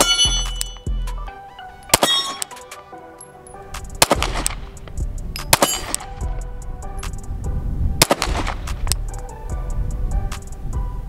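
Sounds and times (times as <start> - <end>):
hip-hop music with heavy bass: 0.0 - 2.8, 3.6 - 11.0
pistol shots: 1.9 - 2.7, 4.0 - 4.8, 5.4 - 6.2, 8.0 - 9.0.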